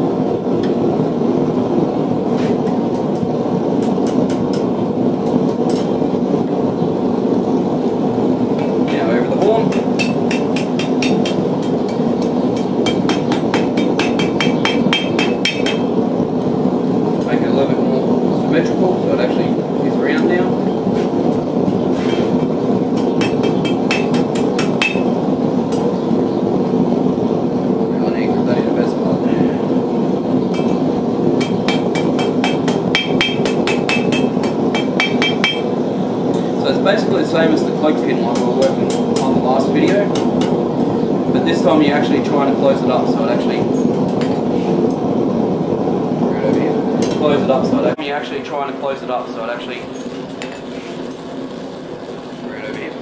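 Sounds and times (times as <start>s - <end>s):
steady low hum: 0.0s - 53.0s
hammer striking hot metal on anvil: 2.6s - 4.8s, 8.6s - 16.0s, 23.0s - 25.9s, 30.5s - 35.7s, 38.3s - 40.6s.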